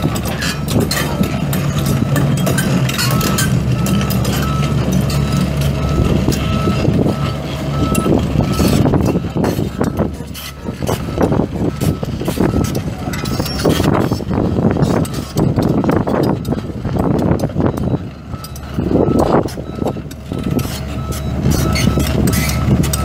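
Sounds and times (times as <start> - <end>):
excavator diesel engine running: 0.0 - 23.0
metallic clanks and knocks: 0.0 - 23.0
repeating alarm beep: 17.7 - 23.0.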